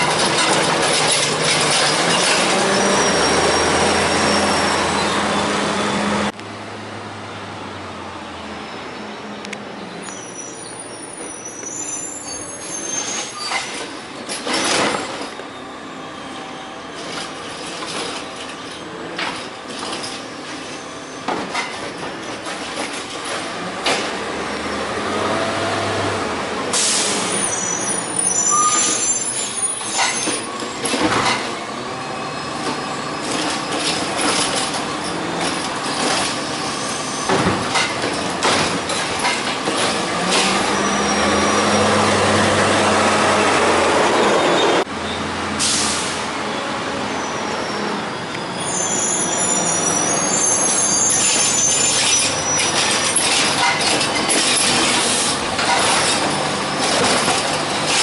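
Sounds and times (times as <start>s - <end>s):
air brake hisses: 26.7s - 27.4s, 45.6s - 46.3s.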